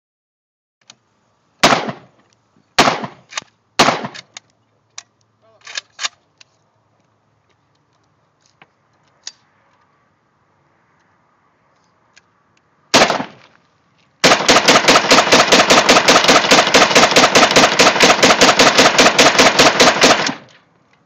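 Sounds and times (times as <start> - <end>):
rifle shots: 1.6 - 2.2, 2.8 - 4.3, 12.9 - 13.5, 14.2 - 20.6.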